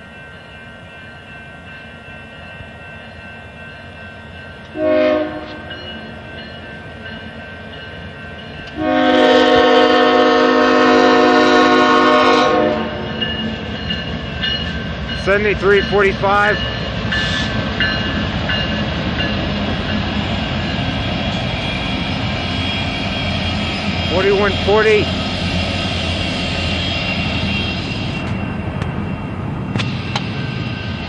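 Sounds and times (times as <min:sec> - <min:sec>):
train rumble: 0:00.0 - 0:31.0
locomotive horn blasts: 0:04.7 - 0:05.7, 0:08.7 - 0:13.1.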